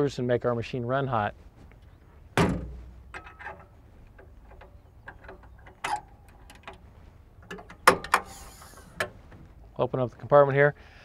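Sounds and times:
metal lid dropping shut: 2.4 - 3.7, 4.6 - 6.8, 7.5 - 9.2
metallic latch clicks: 2.4 - 6.8, 7.4 - 9.2.

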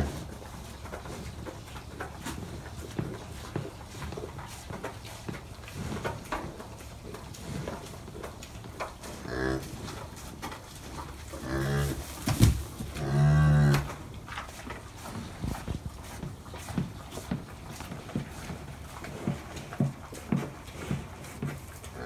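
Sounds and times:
cow mooing: 13.0 - 13.8.

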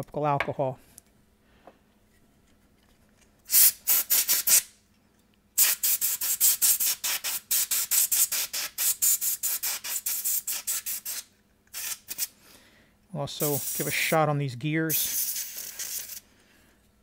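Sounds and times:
compressed air hissing blasts: 3.5 - 4.7, 5.6 - 12.4, 13.3 - 14.2, 14.9 - 16.3.

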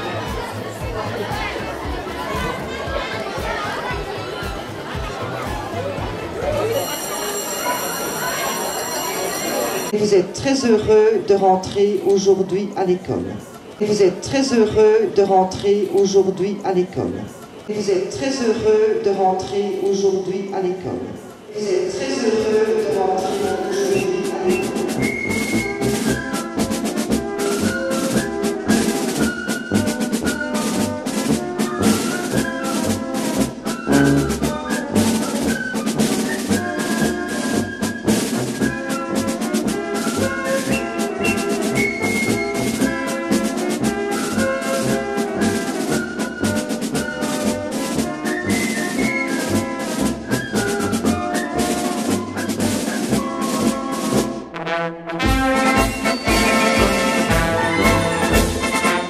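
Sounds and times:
music with brass and drums: 23.2 - 59.0.

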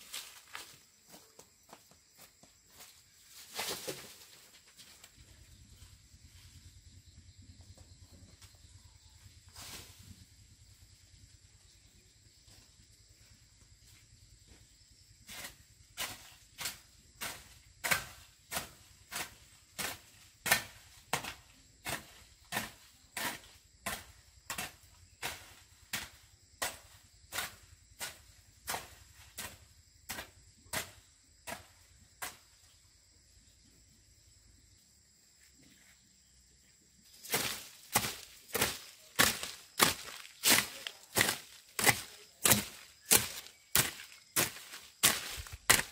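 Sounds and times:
hoe chopping soil: 15.3 - 32.6, 37.2 - 45.9.

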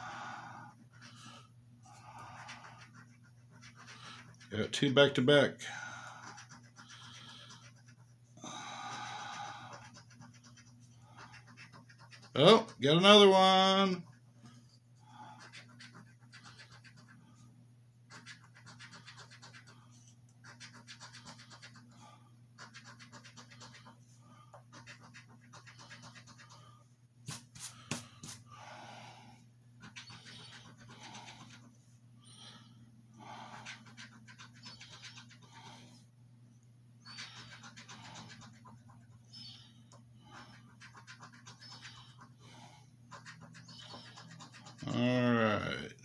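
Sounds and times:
low steady hum: 0.0 - 46.0
coin scratching lottery ticket: 2.2 - 5.3, 6.2 - 8.1, 9.6 - 13.3, 15.4 - 17.2, 18.1 - 19.8, 20.4 - 21.9, 22.6 - 24.0, 24.7 - 26.6, 29.8 - 31.7, 33.6 - 35.5, 37.0 - 39.2, 40.3 - 42.3, 43.1 - 45.0.

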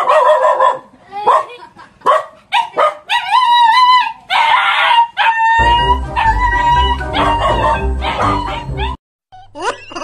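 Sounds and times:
dog barking: 0.0 - 3.3, 7.2 - 8.7
dog howling: 3.1 - 9.0
music with heavy beat: 5.6 - 8.9.

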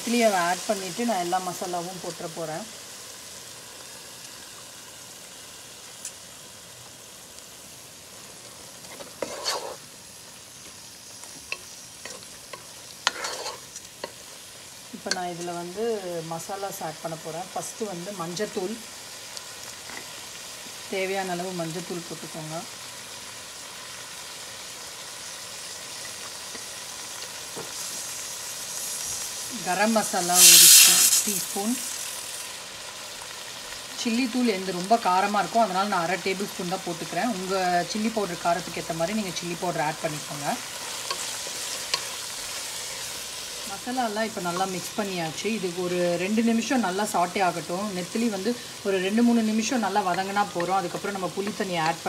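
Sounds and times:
vegetables sizzling in oil: 0.0 - 52.0
wooden spatula scraping pan: 8.9 - 9.8, 13.0 - 13.7.

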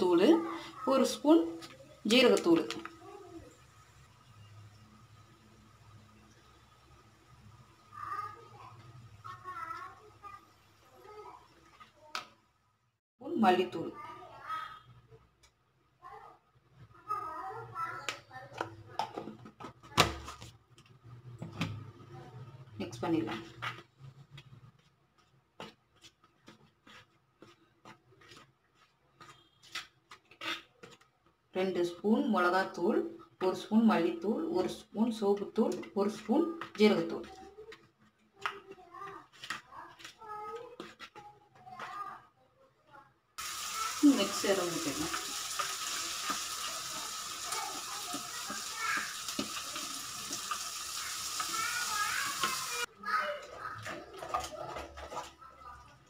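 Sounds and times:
sauce sizzling in a pan: 0.0 - 12.3, 43.4 - 52.9.

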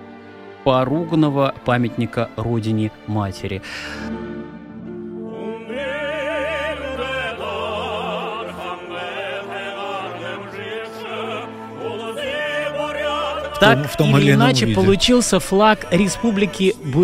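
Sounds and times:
orchestral accompaniment: 0.0 - 17.0
operatic voice singing: 5.2 - 17.0.

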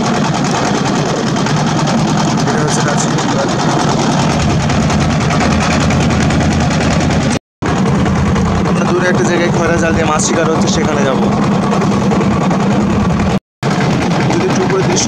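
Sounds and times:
boat engine chugging: 0.0 - 15.0.

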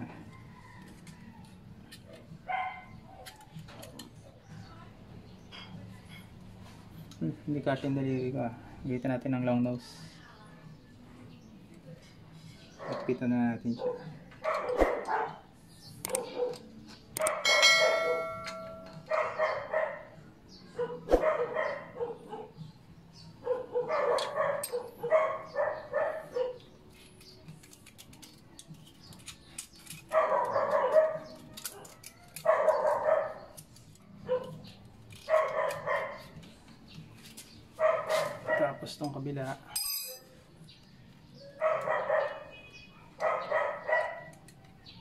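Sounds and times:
dogs barking: 2.0 - 3.5, 12.7 - 26.8, 29.9 - 36.4, 37.7 - 39.8, 41.3 - 44.6
sharp click: 16.0 - 16.2
short metallic ring: 39.8 - 40.3.

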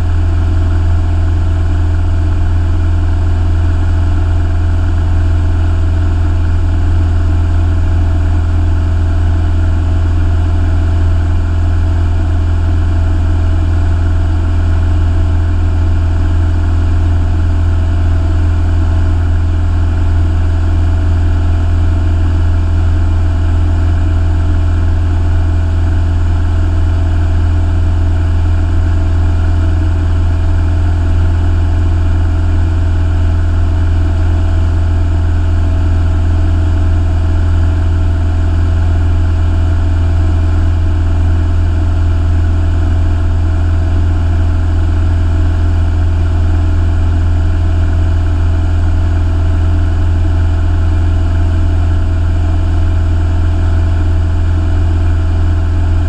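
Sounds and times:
light aircraft engine in cabin: 0.0 - 56.0.

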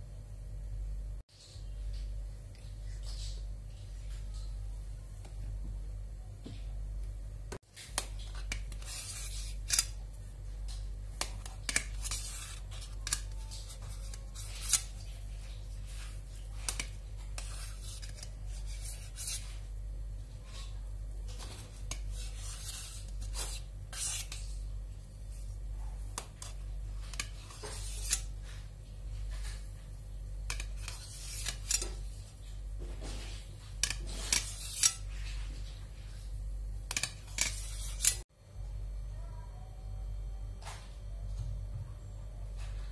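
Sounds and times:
steady low hum: 0.0 - 42.9
blade scraping metal pan: 8.4 - 10.0, 11.2 - 15.0, 16.7 - 19.5, 21.8 - 24.5, 26.2 - 28.4, 30.5 - 32.1, 33.8 - 35.1, 36.9 - 38.2.

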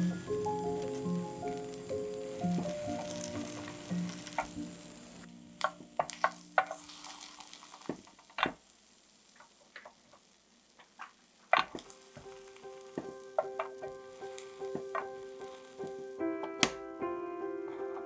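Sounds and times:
light background music: 0.0 - 7.0, 11.8 - 18.0
egg sizzling in a pan: 0.0 - 16.2
wooden spatula knocking on pan: 11.5 - 14.0, 14.7 - 15.2.

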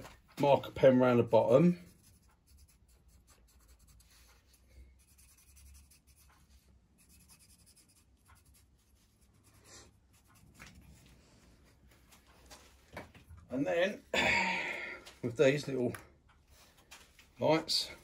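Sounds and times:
marker pen scratching on wood: 1.8 - 11.1.

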